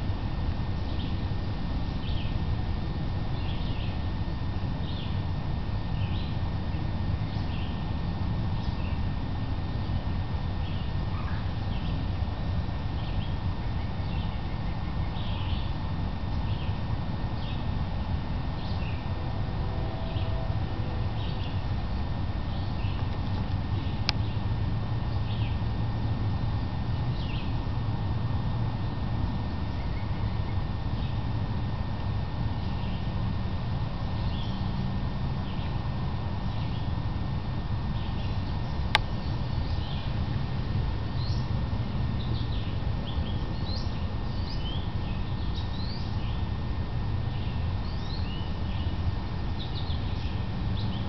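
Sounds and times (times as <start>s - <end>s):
steady low rumble: 0.0s - 51.0s
bird chirping: 42.2s - 46.4s.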